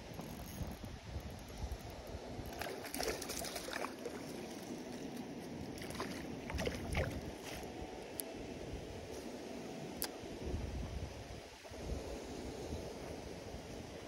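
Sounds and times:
wind rumble on microphone: 0:00.0 - 0:14.0
water splashing: 0:02.5 - 0:07.4.

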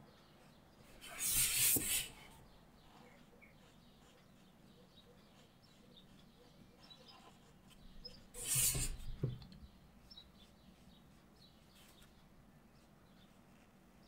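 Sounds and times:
faint bird chirps: 0:00.0 - 0:14.0
card sliding on table: 0:01.0 - 0:02.1, 0:08.4 - 0:09.1
soft knocks: 0:09.1 - 0:09.5.

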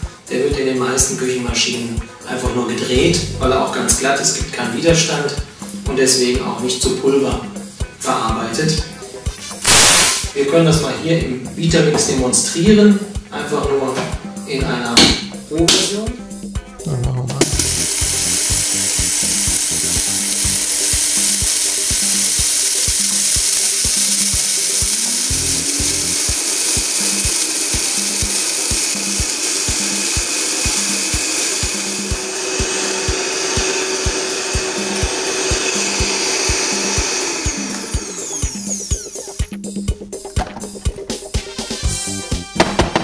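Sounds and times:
blender motor winding down: 0:02.9 - 0:03.5, 0:09.6 - 0:10.3, 0:17.4 - 0:39.5
blender grinding rice: 0:09.6 - 0:10.3, 0:17.4 - 0:39.5.

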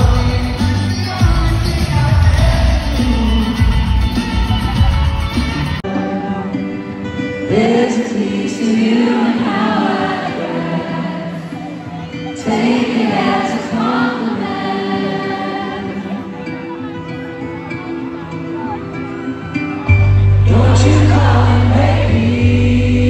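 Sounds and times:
man singing: 0:00.0 - 0:04.9, 0:20.4 - 0:23.0
rock band chords: 0:00.0 - 0:08.8, 0:18.8 - 0:23.0.

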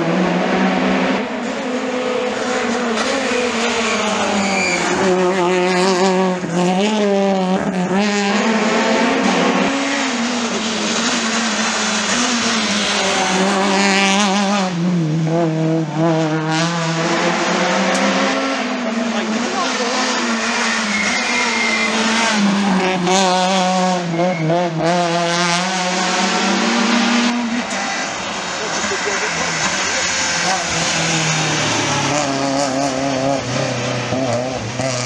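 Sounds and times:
rally car engines revving: 0:00.0 - 0:35.0.

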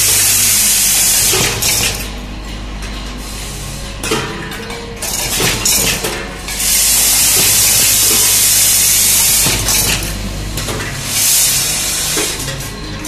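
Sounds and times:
air hissing: 0:00.0 - 0:02.0, 0:06.5 - 0:10.0, 0:11.0 - 0:12.5
vibratory feeder humming: 0:00.0 - 0:13.0.

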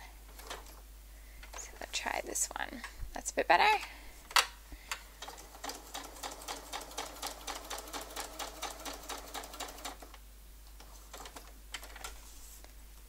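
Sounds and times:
sewing machine motor hum: 0:05.2 - 0:10.1.

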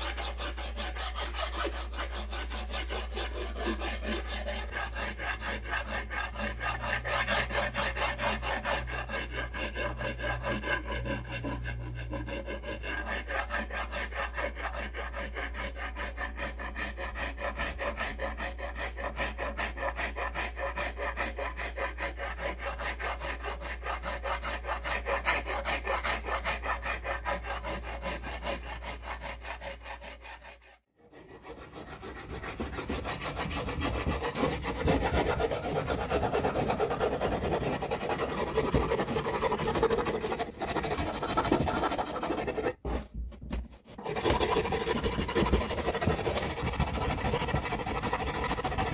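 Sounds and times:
hand rasp filing wood: 0:00.0 - 0:48.9.

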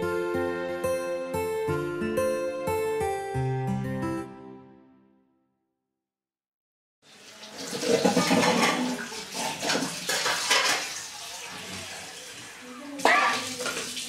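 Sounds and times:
tap running into sink: 0:07.4 - 0:11.9
dishes clinking and knocking: 0:07.7 - 0:11.0.

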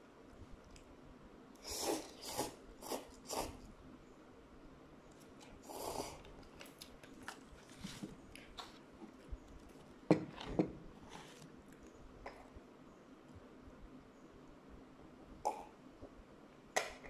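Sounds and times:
noodle slurp: 0:01.6 - 0:03.6.

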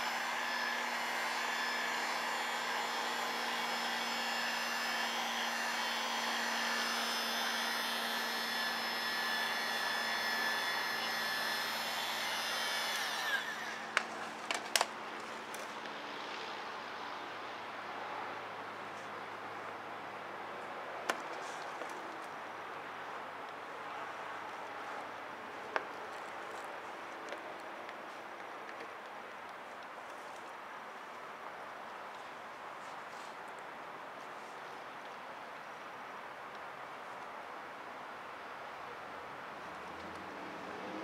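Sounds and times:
heat gun blowing with whine: 0:00.0 - 0:14.9.

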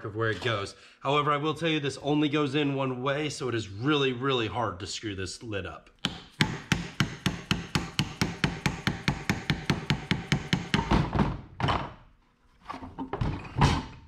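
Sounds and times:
metal scrapes and clunks: 0:12.2 - 0:14.0.

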